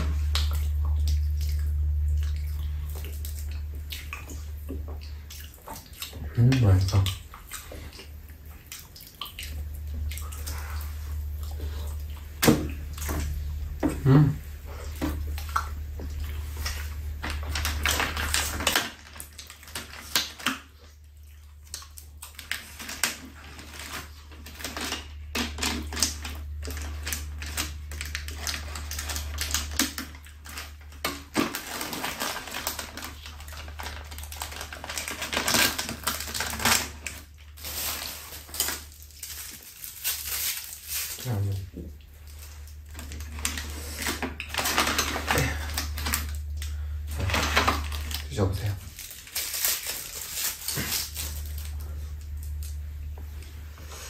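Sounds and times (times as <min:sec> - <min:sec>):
steady low hum: 0:00.0 - 0:54.0
chewing smacking and clicking: 0:00.2 - 0:13.2.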